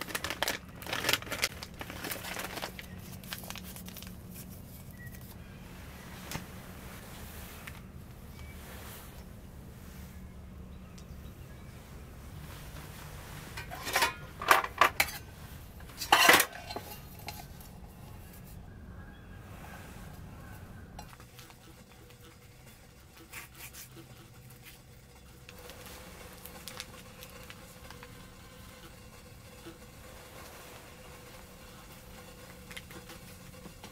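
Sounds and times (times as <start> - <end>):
faint handling noises: 0.0 - 18.7.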